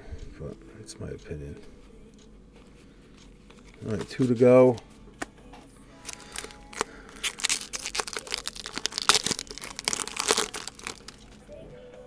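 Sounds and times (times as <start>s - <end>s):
wrapper tearing and crinkling: 6.0s - 11.2s.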